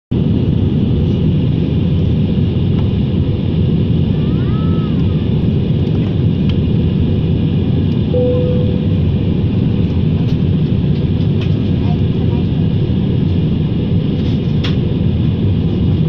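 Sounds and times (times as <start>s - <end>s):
airliner cabin engine roar: 0.1s - 16.0s
faint rising and falling tone: 8.1s - 9.2s.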